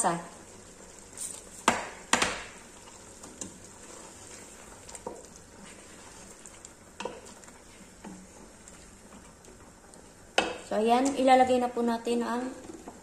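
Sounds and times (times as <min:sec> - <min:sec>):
food sizzling: 0:00.0 - 0:13.0
wooden spoon knocking on pot: 0:01.6 - 0:02.6, 0:10.4 - 0:11.2.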